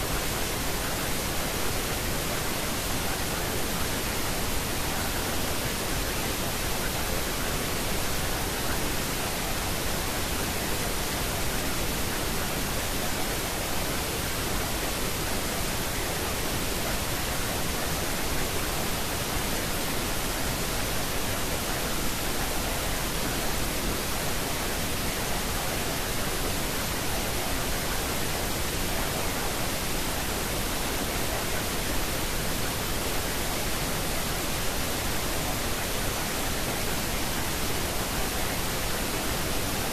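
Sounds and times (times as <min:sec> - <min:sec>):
steady broadband noise hiss: 0:00.0 - 0:39.9.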